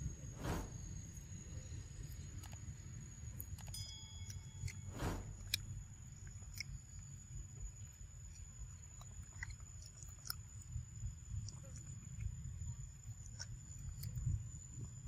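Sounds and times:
low rumble: 0:00.0 - 0:02.0, 0:04.8 - 0:06.2
monkey chewing fruit: 0:05.3 - 0:12.4.

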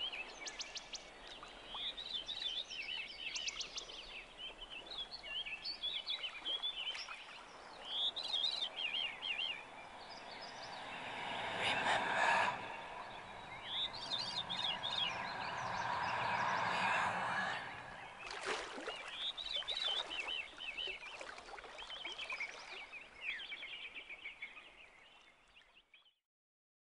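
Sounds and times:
small birds chirping: 0:00.0 - 0:26.1.

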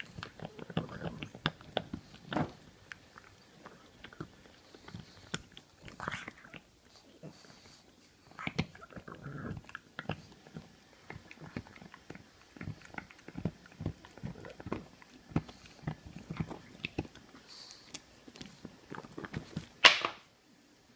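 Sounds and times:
dog chomping on toy: 0:08.4 - 0:17.4.

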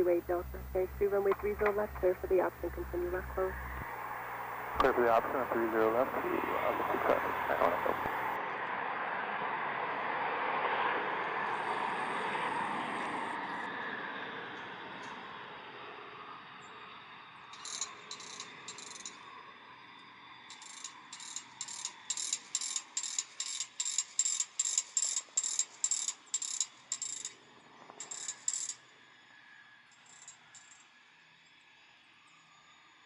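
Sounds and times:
jet engines running: 0:00.0 - 0:08.4
high-pitched ratchet-like clicking buzz: 0:17.6 - 0:19.2, 0:20.5 - 0:27.4, 0:28.0 - 0:28.8.

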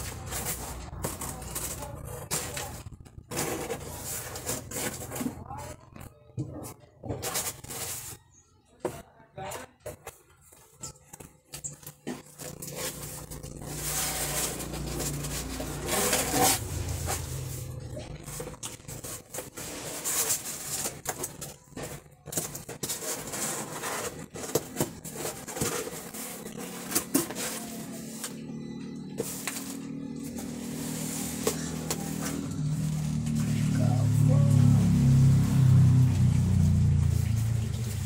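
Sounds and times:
cardboard packaging rustling: 0:10.6 - 0:34.2.

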